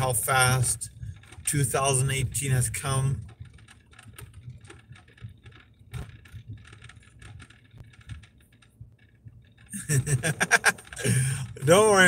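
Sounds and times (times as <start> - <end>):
light irregular clicks: 0.0 - 11.8
car road rumble: 0.0 - 12.0.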